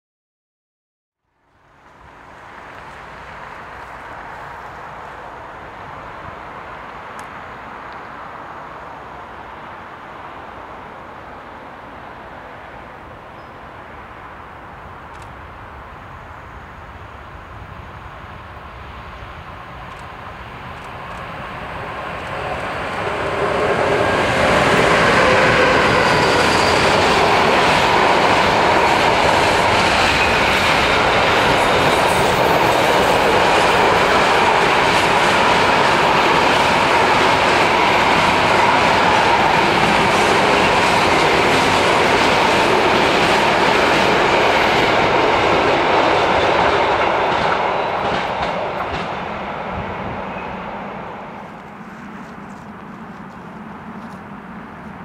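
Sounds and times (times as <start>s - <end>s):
freight train rumbling past: 1.5s - 55.0s.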